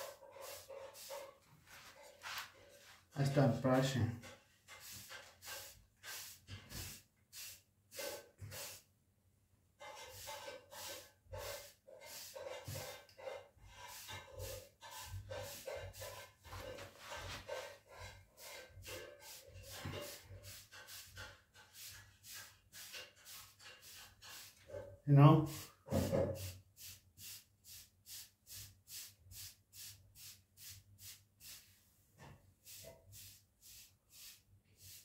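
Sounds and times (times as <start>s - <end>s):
hairbrush swishing through hair: 0.0s - 3.0s, 32.6s - 35.0s.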